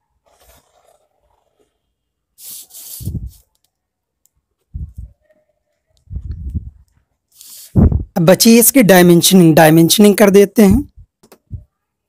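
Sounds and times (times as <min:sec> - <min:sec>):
plastic scale sliding across paper: 0:00.2 - 0:03.5.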